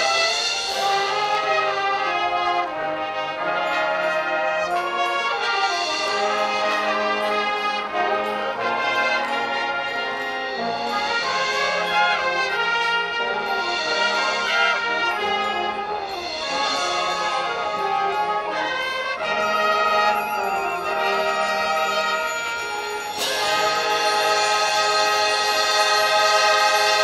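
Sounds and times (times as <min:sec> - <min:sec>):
marching band playing: 0:00.0 - 0:27.0.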